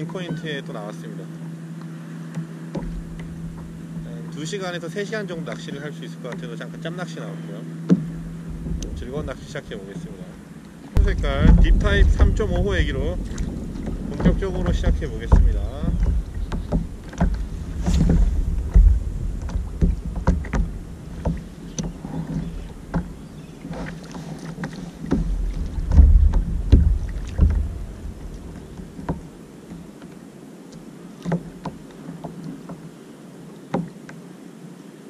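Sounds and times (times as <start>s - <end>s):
water lapping against kayak hull: 0.0s - 35.0s
light knocks and clicks: 1.8s - 4.1s, 7.8s - 30.2s, 31.2s - 32.8s, 33.7s - 34.2s
wind rumbling in microphone: 8.0s - 10.3s, 10.9s - 24.0s, 24.9s - 29.4s.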